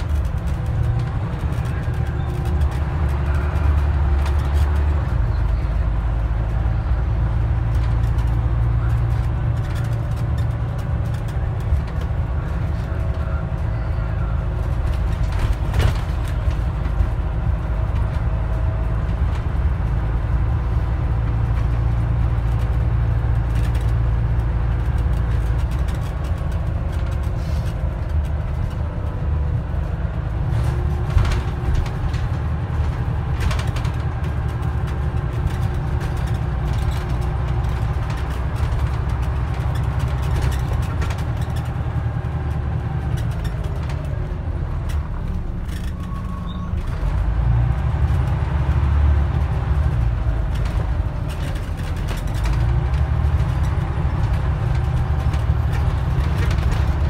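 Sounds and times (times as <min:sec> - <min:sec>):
bus engine drone: 0:00.0 - 0:57.0
road rumble: 0:00.0 - 0:57.0.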